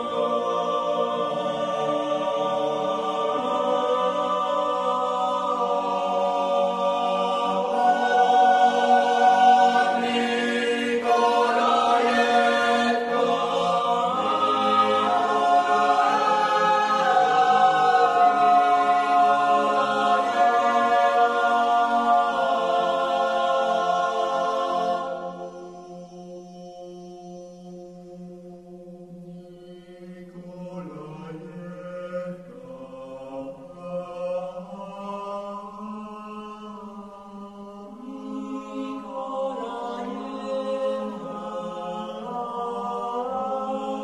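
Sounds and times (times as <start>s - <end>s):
choir singing sustained chords: 0.0s - 44.0s.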